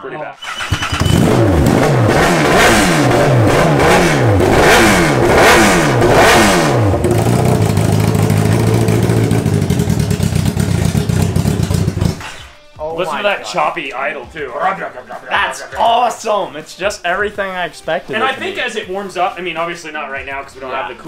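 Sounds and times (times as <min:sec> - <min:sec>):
motorcycle engine revving: 0:00.4 - 0:12.5
choppy engine idle: 0:06.8 - 0:12.2.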